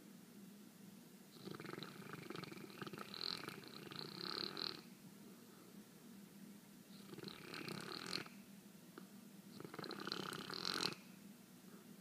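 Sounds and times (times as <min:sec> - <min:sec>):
dog snoring: 0:01.3 - 0:04.9, 0:06.9 - 0:08.4, 0:09.5 - 0:11.1.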